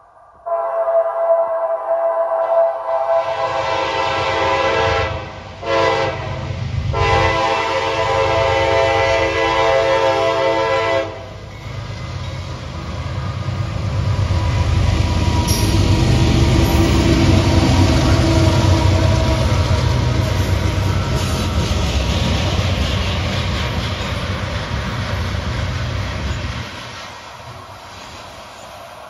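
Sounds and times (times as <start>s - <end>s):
diesel locomotive engines rumbling: 0.0s - 29.0s
locomotive air horn: 0.4s - 11.4s
freight train wheels rumbling: 2.8s - 29.0s.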